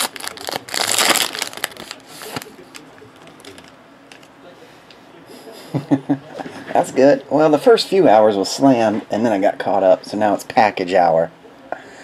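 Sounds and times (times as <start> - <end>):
foil wrapper crinkling: 0.0 - 4.3.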